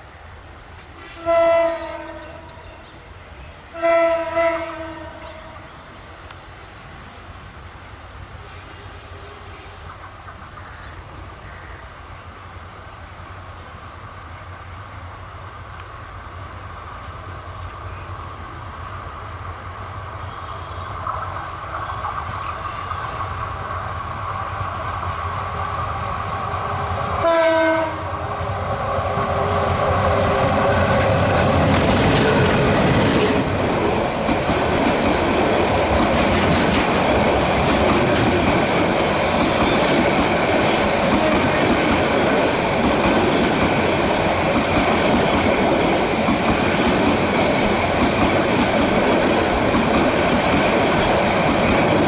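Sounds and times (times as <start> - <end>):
diesel locomotive engine: 0.0 - 52.0
train horn blast: 1.0 - 2.6, 3.7 - 5.9, 20.2 - 21.0, 27.2 - 28.1
train wheels clattering on rails: 25.0 - 52.0.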